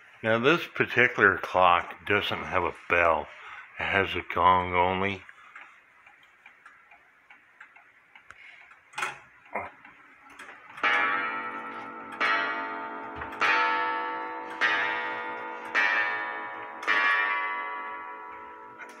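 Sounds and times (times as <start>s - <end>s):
clock ticking: 4.6s - 19.0s
clock clicks: 5.5s - 13.6s, 14.2s - 19.0s
clock gong strokes: 10.8s - 19.0s.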